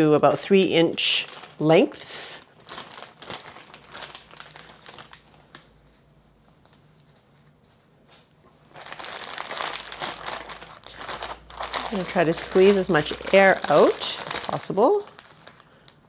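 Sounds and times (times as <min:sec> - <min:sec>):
plastic bag crinkling: 0:00.5 - 0:05.8, 0:08.6 - 0:16.0.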